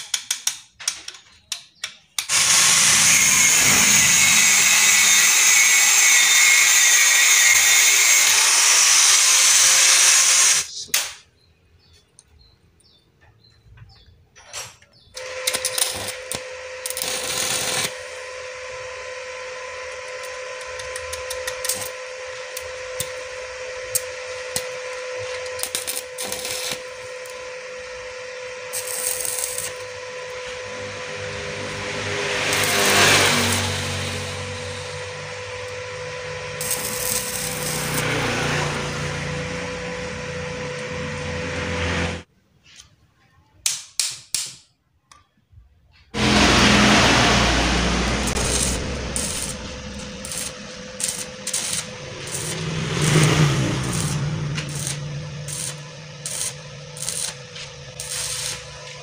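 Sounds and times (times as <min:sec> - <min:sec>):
welding arc crackling: 0:02.2 - 0:11.2, 0:15.2 - 0:41.3, 0:46.2 - 0:59.0
steady hum: 0:46.2 - 0:59.0.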